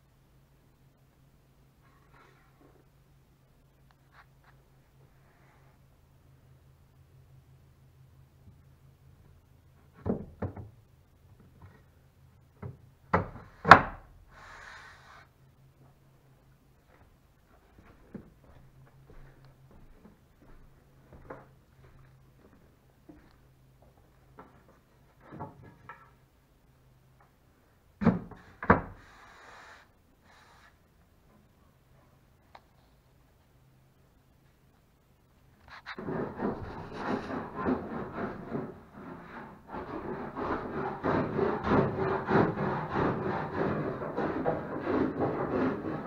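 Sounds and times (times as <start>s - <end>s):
board scraping rub: 28.9s - 30.8s, 35.7s - 46.0s.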